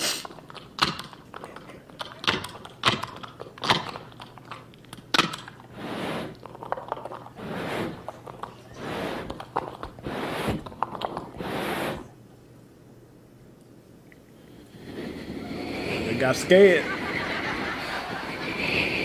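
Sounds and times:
hissing breathy vocal swells: 0:14.4 - 0:16.7.

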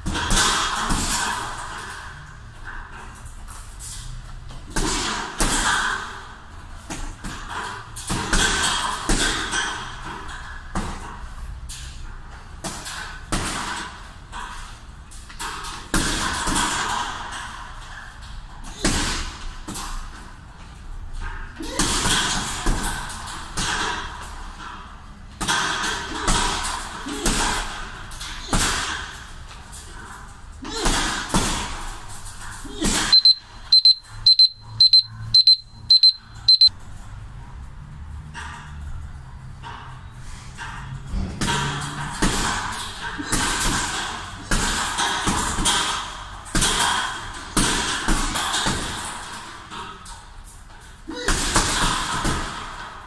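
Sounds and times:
punches hitting a heavy bag: 0:04.7 - 0:10.0, 0:21.6 - 0:24.0, 0:25.4 - 0:29.2, 0:30.6 - 0:31.9, 0:41.3 - 0:49.3, 0:51.1 - 0:52.9.

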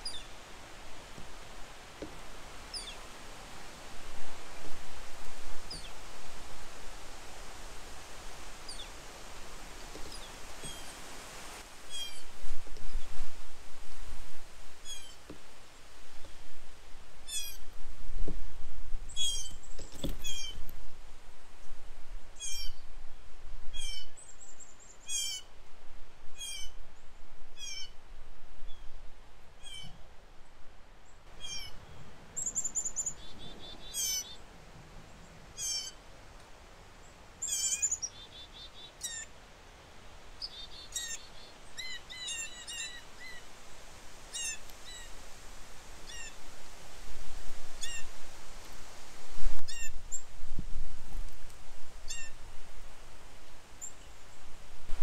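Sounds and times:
birds chirping and trilling: 0:00.0 - 0:00.4, 0:02.7 - 0:03.0, 0:11.9 - 0:13.1, 0:19.1 - 0:20.6, 0:22.4 - 0:22.8, 0:23.8 - 0:25.5, 0:29.6 - 0:30.0, 0:31.3 - 0:34.4, 0:35.6 - 0:36.0, 0:37.4 - 0:39.3, 0:40.4 - 0:43.4, 0:44.3 - 0:45.1
low wind rumble: 0:00.0 - 0:24.8, 0:43.2 - 0:55.0.

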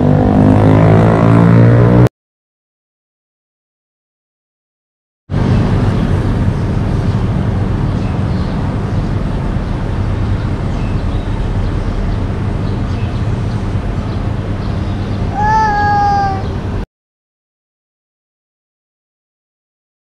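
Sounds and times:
street traffic rumble: 0:00.0 - 0:02.1, 0:05.3 - 0:16.8
cat meowing: 0:15.3 - 0:16.6.

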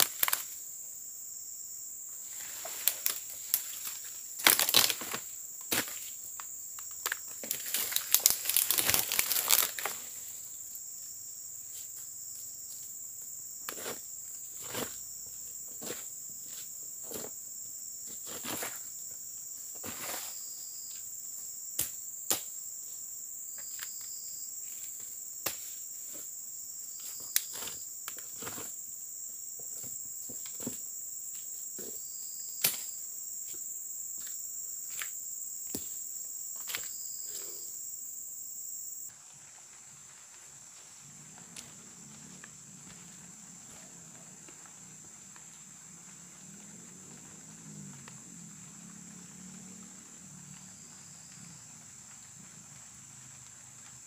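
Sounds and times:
twigs snapping underfoot: 0:00.0 - 0:00.5, 0:02.8 - 0:10.0
high drone of insects: 0:00.0 - 0:54.0
crunching and tearing of dry leaves: 0:02.4 - 0:05.9, 0:07.0 - 0:10.1.

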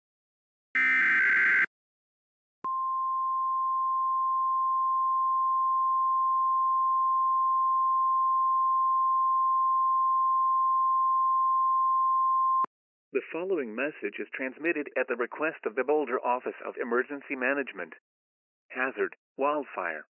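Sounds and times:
steady alarm tone: 0:00.8 - 0:01.7.

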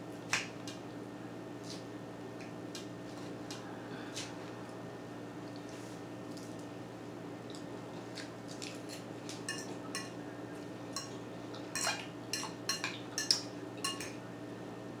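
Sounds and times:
fork clinking in a bowl: 0:09.4 - 0:10.2, 0:10.9 - 0:14.2.

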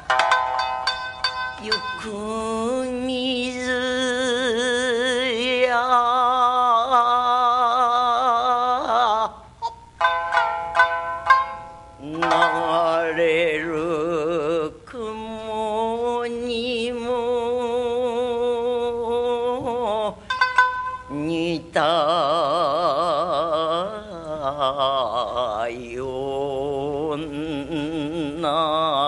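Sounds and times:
plucked shamisen: 0:00.0 - 0:04.5, 0:09.6 - 0:14.5, 0:20.1 - 0:22.2
woman singing with wide vibrato: 0:01.5 - 0:10.0, 0:11.9 - 0:20.3, 0:20.9 - 0:29.0.

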